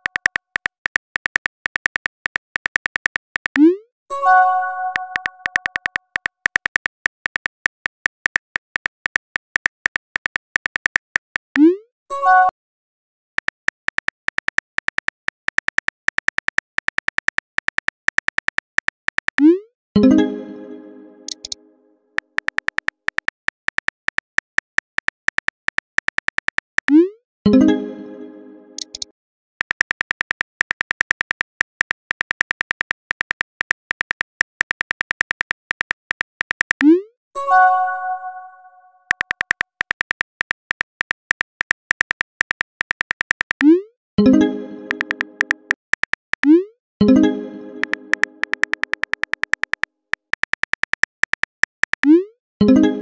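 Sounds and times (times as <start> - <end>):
keyboard tap clicks: 0.0 - 3.7, 4.9 - 11.4, 21.3 - 21.6, 28.8 - 29.1, 44.9 - 46.6, 47.8 - 52.2
phone keyboard typing clicks: 0.0 - 3.8, 4.9 - 11.8, 13.4 - 19.5, 21.3 - 21.6, 22.2 - 27.1, 28.8 - 37.0, 39.1 - 52.3
synthesized chime: 20.0 - 21.5, 37.4 - 39.0.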